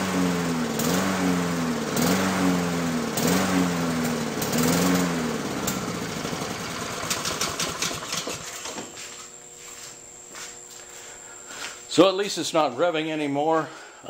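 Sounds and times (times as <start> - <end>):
lawn mower engine surging: 0.0 - 8.8.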